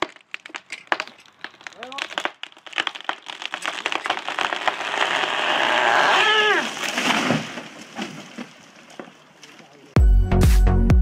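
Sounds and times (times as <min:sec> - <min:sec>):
tree crashing to the ground: 0:00.0 - 0:09.2
wood cracking and splintering: 0:00.0 - 0:09.6
short cry: 0:05.4 - 0:06.8.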